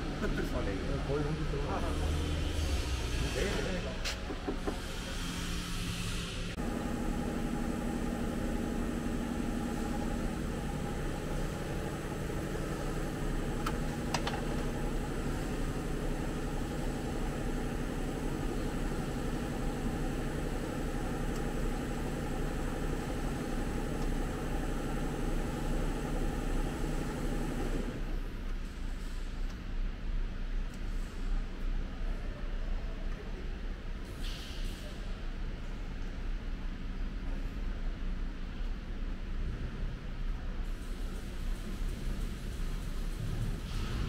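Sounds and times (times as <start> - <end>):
truck engine idling: 6.6 - 28.0.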